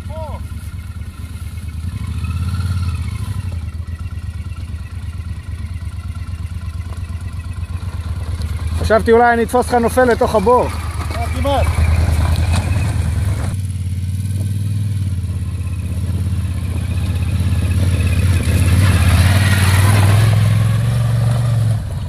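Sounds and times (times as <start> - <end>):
motorcycle engine at low revs: 0.0 - 22.0.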